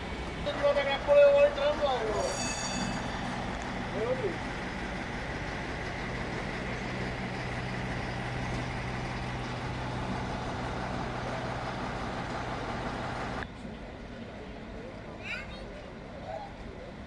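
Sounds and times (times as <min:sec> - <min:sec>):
heavy vehicles idling: 0:00.0 - 0:17.0
street noise: 0:00.0 - 0:17.0
faint high whine: 0:02.1 - 0:03.3.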